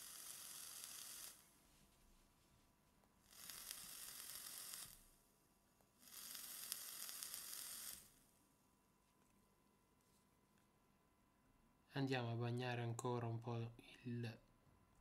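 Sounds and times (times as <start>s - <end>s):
vaporizer coil sizzling: 0.0s - 1.8s, 3.2s - 5.2s, 6.0s - 8.3s.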